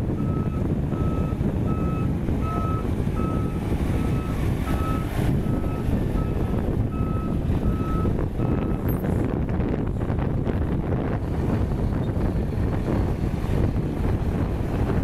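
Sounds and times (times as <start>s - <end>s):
diesel engine rumble: 0.0s - 15.0s
truck reversing alarm beeping: 0.1s - 9.0s.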